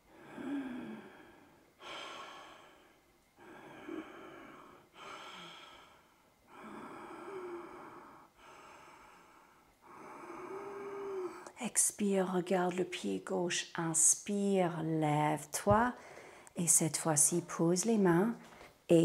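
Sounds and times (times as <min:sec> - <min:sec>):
woman breathing deeply: 0:00.0 - 0:11.6, 0:16.0 - 0:16.6.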